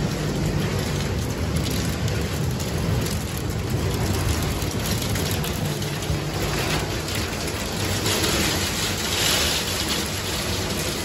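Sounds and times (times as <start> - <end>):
hail and heavy rain pelting: 0.0 - 11.0
low rumble: 0.0 - 11.0.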